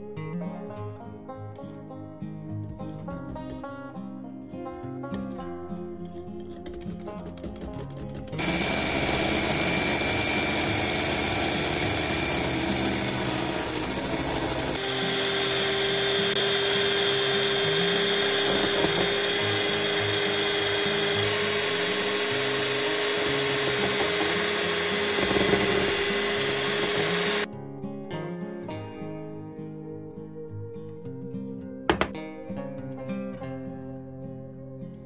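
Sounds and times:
electric hand mixer running: 8.3s - 27.5s, 31.9s - 32.2s.

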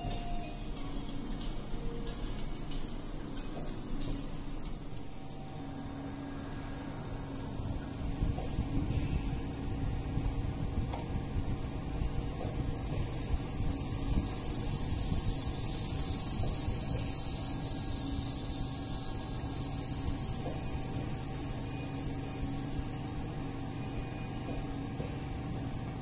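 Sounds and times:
machine humming: 0.0s - 8.4s, 9.4s - 24.4s
oxygen hissing: 11.5s - 22.9s.

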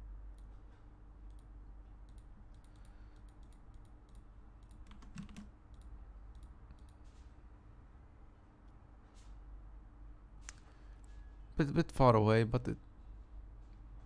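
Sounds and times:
low steady hum: 0.0s - 14.0s
keyboard and mouse clicking: 2.1s - 7.0s.

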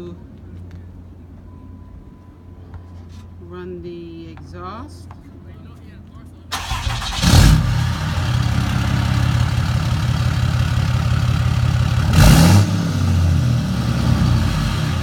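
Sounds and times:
pickup engine idling: 6.5s - 15.0s.

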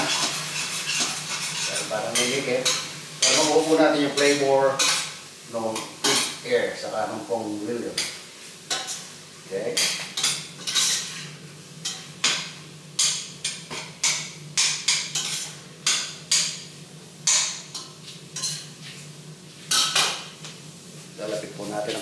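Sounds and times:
metal utensil scraping a pot: 0.0s - 5.0s.

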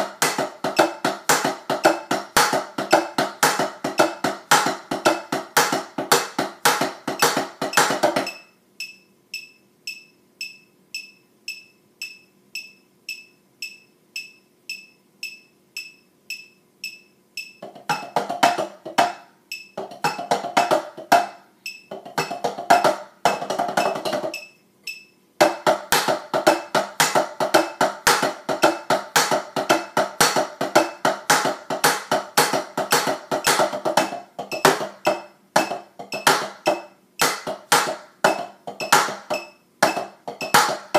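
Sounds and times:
even ticking: 0.0s - 25.5s
drumsticks on practice pads: 0.0s - 40.9s.

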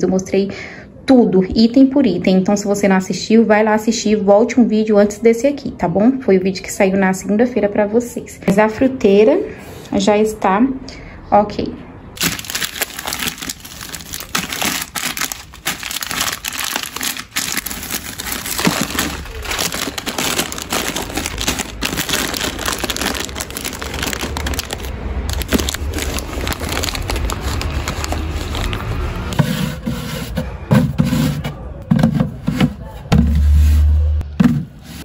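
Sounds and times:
plastic bags crinkling: 12.2s - 29.3s.

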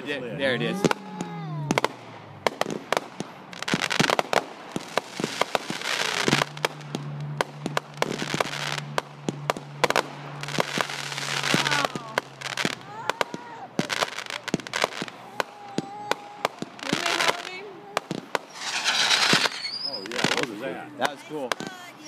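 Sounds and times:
fireworks bangs: 0.0s - 22.0s
fireworks crackle: 0.7s - 22.0s.

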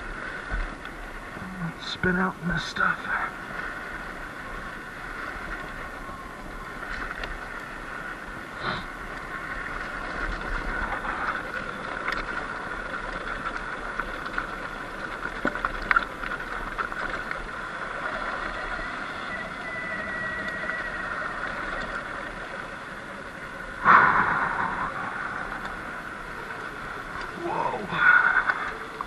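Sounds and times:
tyre and riding noise: 3.4s - 24.1s.

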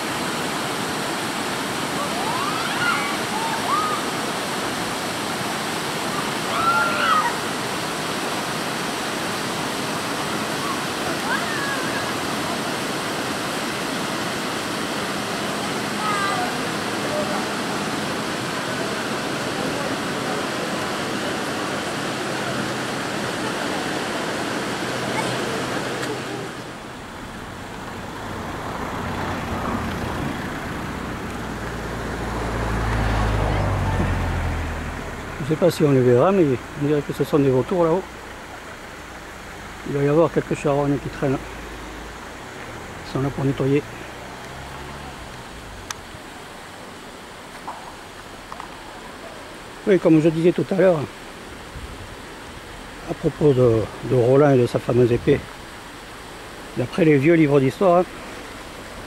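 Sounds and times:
whitewater rapids rushing: 0.0s - 59.0s
distant shout: 2.0s - 4.2s, 6.2s - 7.6s, 10.6s - 12.2s
vehicle engine rumble: 17.1s - 49.9s.

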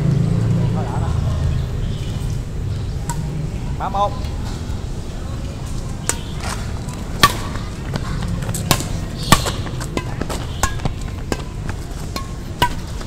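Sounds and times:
steady low rumble: 0.0s - 13.0s
racket striking shuttlecock: 3.0s - 3.5s, 6.0s - 13.0s.

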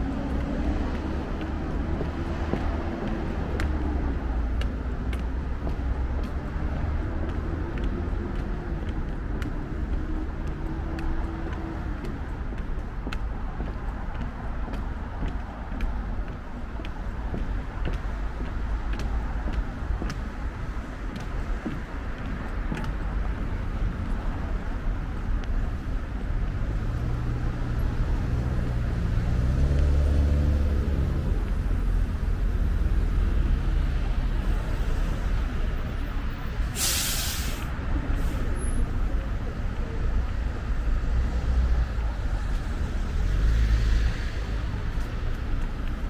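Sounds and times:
road traffic rumble: 0.0s - 46.0s
heavy vehicle engine passing: 26.1s - 46.0s
bus air brakes hissing: 36.6s - 38.8s.

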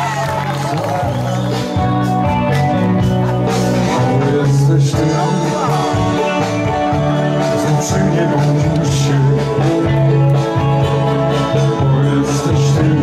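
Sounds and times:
person singing: 3.1s - 13.0s.

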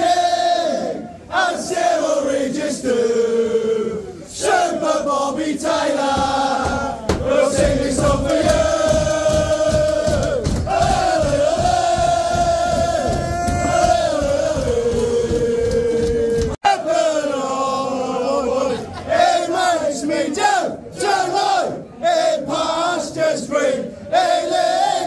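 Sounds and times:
crowd of men chanting: 0.0s - 25.0s
low thumping beat: 6.0s - 16.6s.

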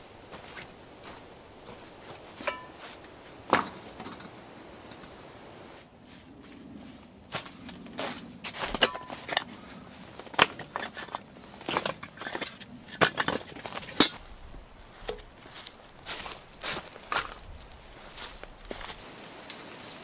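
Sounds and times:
firewood pieces knocking together: 2.3s - 4.4s, 8.6s - 9.5s, 10.2s - 14.3s.

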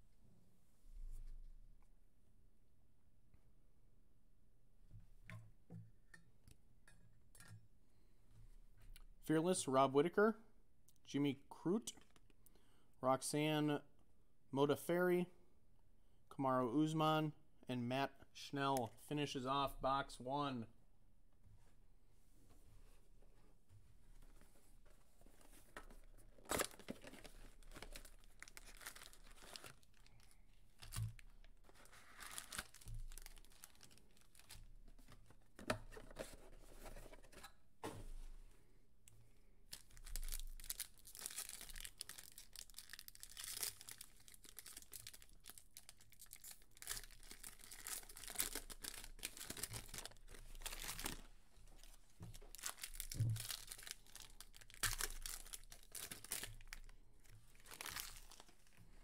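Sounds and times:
foil packs tearing and crinkling: 26.4s - 34.6s, 39.8s - 51.2s, 52.5s - 56.9s.

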